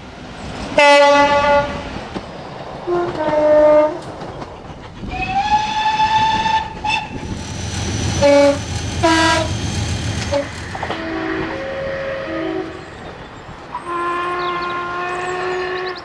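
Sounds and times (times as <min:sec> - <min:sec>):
moving train rumble: 0:00.0 - 0:16.0
two-tone locomotive horn: 0:00.8 - 0:01.8, 0:02.9 - 0:04.1, 0:08.2 - 0:09.6, 0:10.2 - 0:13.0, 0:13.7 - 0:16.0
steam locomotive whistle: 0:05.1 - 0:07.3, 0:08.0 - 0:13.0, 0:13.8 - 0:16.0.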